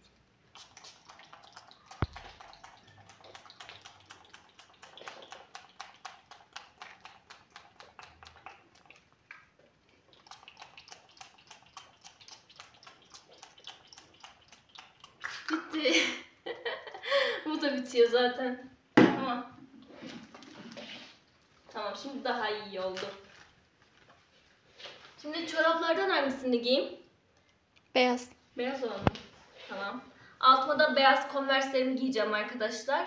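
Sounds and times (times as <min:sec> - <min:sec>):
spray bottle pumping: 0:00.5 - 0:08.8, 0:10.2 - 0:15.6.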